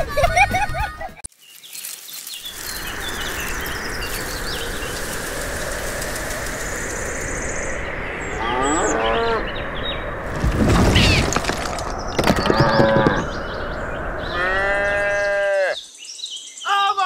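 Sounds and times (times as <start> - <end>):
steady hiss: 1.6 - 8.1
cow mooing: 8.4 - 9.4, 14.3 - 15.8.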